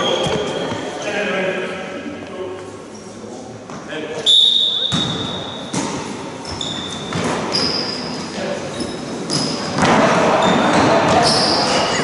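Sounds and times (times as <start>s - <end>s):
shoes squeaking on court floor: 0.0s - 1.0s, 3.0s - 12.0s
players' voices: 8.2s - 12.0s.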